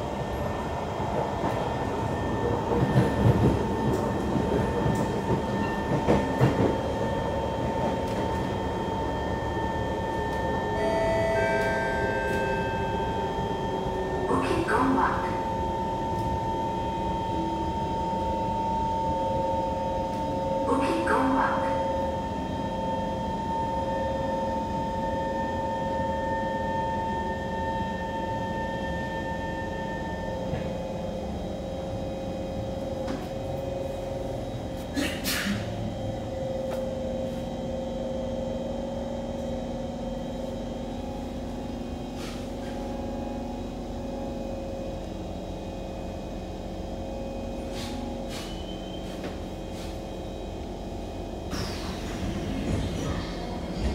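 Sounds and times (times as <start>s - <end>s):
train cabin rumble: 0.0s - 9.0s, 30.4s - 37.7s, 47.3s - 53.9s.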